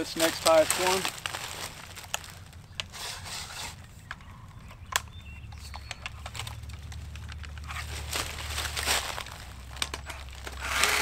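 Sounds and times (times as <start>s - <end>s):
low steady rumble: 0.0s - 11.0s
knocks and clicks of handling: 4.0s - 7.9s, 9.7s - 10.6s.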